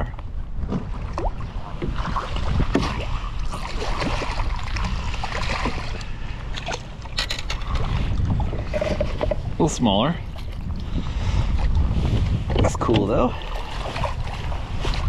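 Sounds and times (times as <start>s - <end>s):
wind rumble on microphone: 0.0s - 15.0s
water sloshing against net: 0.7s - 9.5s, 12.5s - 15.0s.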